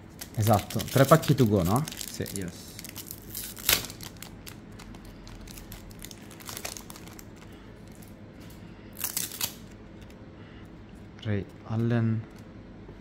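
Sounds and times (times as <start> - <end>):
wrapper crinkling: 0.0 - 8.2, 9.0 - 9.7.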